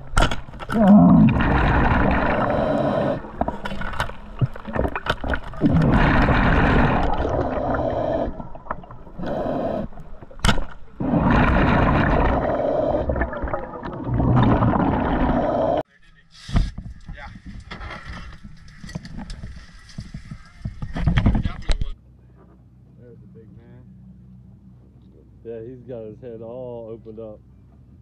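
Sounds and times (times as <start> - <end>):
gurgling bubbles: 0.7 - 15.8
regulator breathing underwater: 1.1 - 3.6, 5.8 - 10.1, 11.0 - 13.6.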